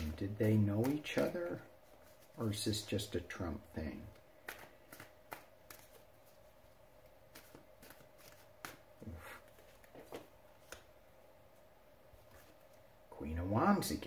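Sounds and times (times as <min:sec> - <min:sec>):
cards being shuffled: 0:00.0 - 0:11.0, 0:12.1 - 0:12.8
low steady hum: 0:00.0 - 0:14.0.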